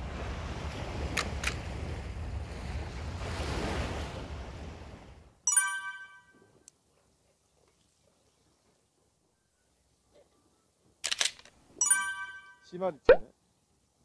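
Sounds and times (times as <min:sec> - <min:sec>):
surf washing on beach: 0:00.0 - 0:05.3
bell-like chime: 0:05.5 - 0:06.6, 0:11.8 - 0:12.7.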